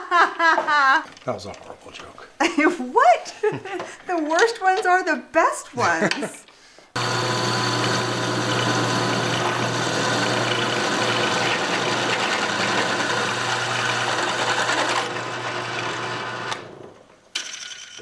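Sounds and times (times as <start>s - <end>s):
drill press cutting metal: 7.0s - 18.0s.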